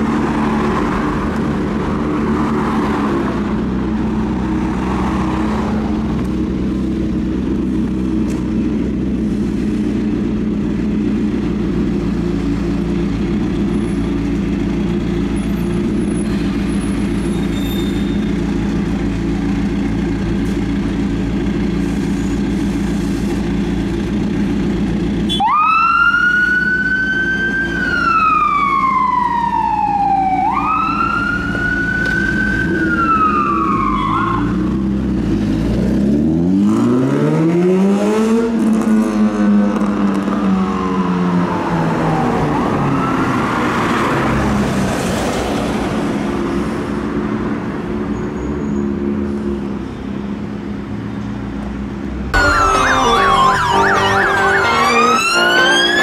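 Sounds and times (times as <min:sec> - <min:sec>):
siren wailing: 0:25.4 - 0:34.6, 0:52.4 - 0:56.0.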